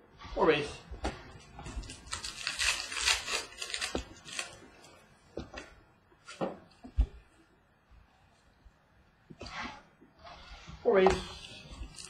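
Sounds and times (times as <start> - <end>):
card wrapper crinkling: 1.8 - 4.6.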